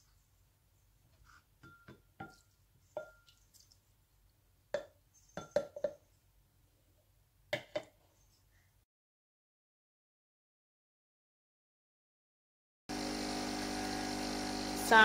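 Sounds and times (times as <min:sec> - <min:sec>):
clinks on ceramic bowl: 0:01.6 - 0:03.4, 0:04.8 - 0:06.0.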